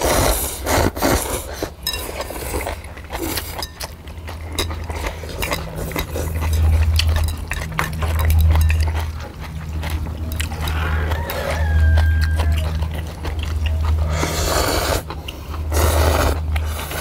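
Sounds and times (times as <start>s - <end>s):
chewing: 0.0s - 17.0s
noodles slurping: 0.0s - 17.0s
low hum: 1.8s - 17.0s
utensils clinking on metal plates: 6.4s - 9.1s.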